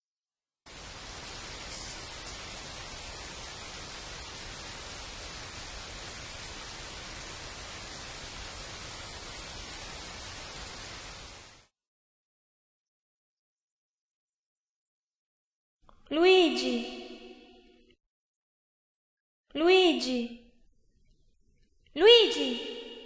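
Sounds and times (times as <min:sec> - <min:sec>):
steady rain falling: 0:00.7 - 0:11.7.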